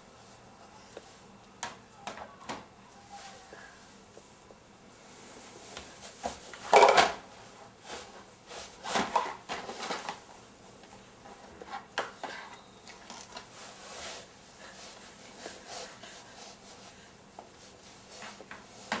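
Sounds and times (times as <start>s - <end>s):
plastic cases and toys clattering: 6.7s - 7.2s.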